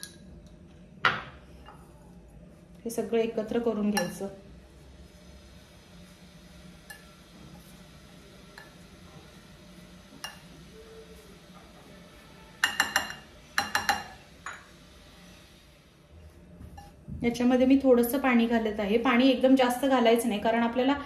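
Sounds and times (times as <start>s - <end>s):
spoon clinking against glass bowl: 12.6s - 14.7s.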